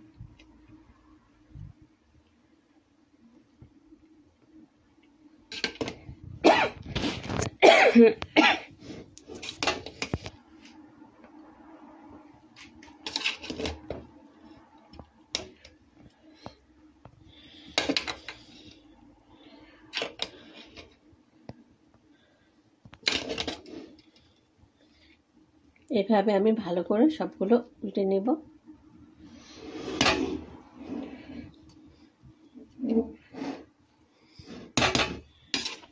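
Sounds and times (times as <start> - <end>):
faint steady hum: 0.0 - 35.9
metal spatula scraping a pot: 5.5 - 6.0, 8.8 - 10.3, 12.6 - 14.0, 23.0 - 24.2, 29.3 - 31.6, 32.8 - 33.7, 34.3 - 35.9.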